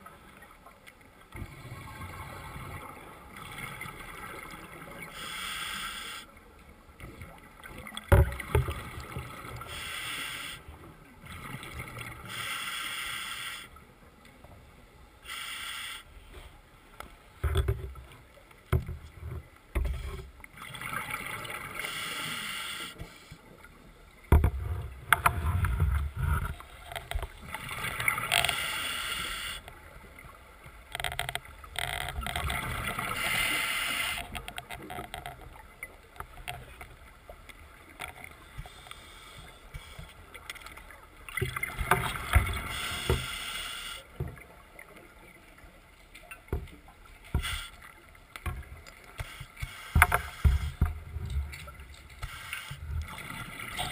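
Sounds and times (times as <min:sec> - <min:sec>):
diver inhaling through regulator: 0:05.1 - 0:06.3, 0:12.3 - 0:13.7, 0:15.2 - 0:16.1, 0:21.8 - 0:23.3, 0:28.5 - 0:29.7, 0:33.2 - 0:34.3, 0:42.6 - 0:44.1.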